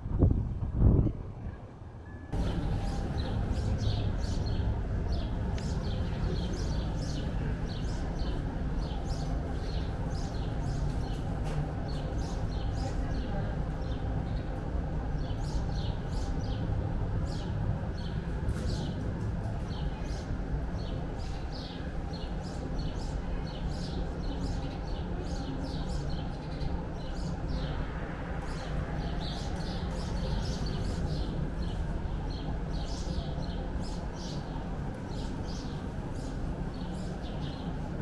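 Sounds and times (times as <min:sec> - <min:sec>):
steady low rumble: 0:00.0 - 0:38.0
small birds chirping: 0:28.4 - 0:38.0.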